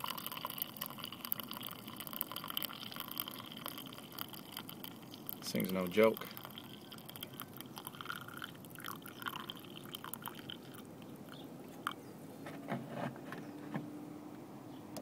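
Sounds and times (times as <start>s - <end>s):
water running into a mug: 0.0s - 11.4s.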